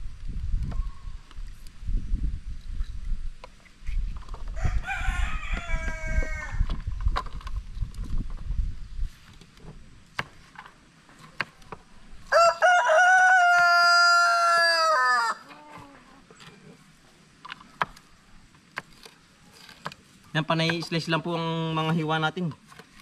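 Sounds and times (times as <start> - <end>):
rooster crowing: 4.6 - 6.6, 12.3 - 15.7.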